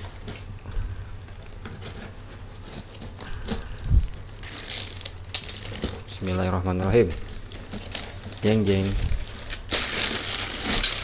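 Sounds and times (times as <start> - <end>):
cardboard and tape tearing: 6.9 - 11.0.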